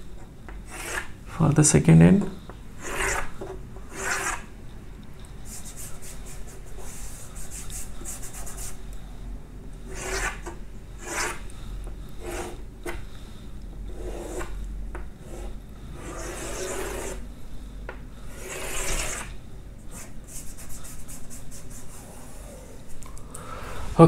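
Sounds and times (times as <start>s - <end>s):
chalk scraping on chalkboard: 0.6s - 1.2s, 2.8s - 4.5s, 5.5s - 8.8s, 9.9s - 11.4s, 12.2s - 13.0s, 13.9s - 14.6s, 15.2s - 17.2s, 18.3s - 22.1s.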